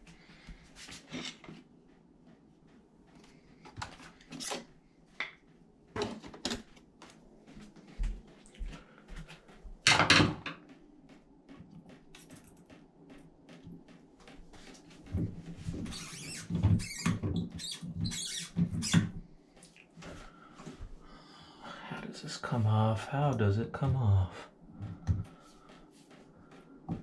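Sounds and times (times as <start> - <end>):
hands knocking and squeaking faucet knob: 15.9 - 19.2.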